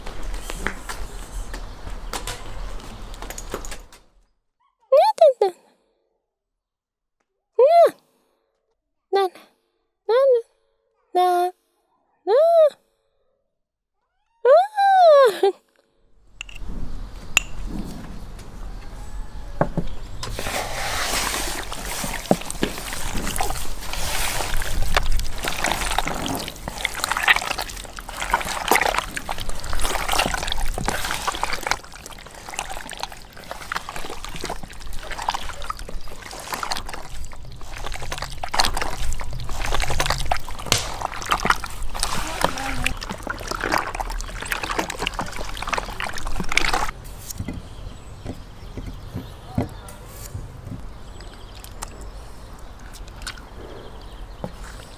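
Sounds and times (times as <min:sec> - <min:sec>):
hands squelching wet meat: 0:20.3 - 0:47.0, 0:51.1 - 0:53.6.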